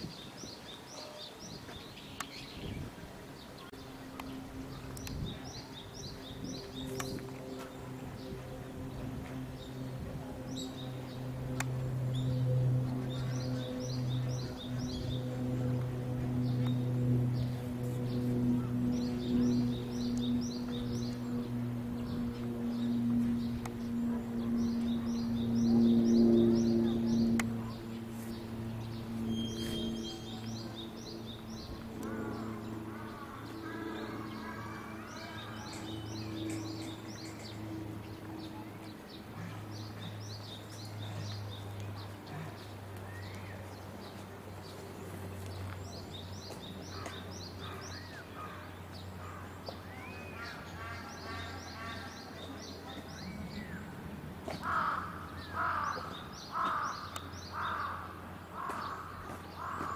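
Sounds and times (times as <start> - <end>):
small birds chirping: 0.0 - 59.9
steady low hum: 0.0 - 59.9
loud harsh bird calls: 54.5 - 59.9.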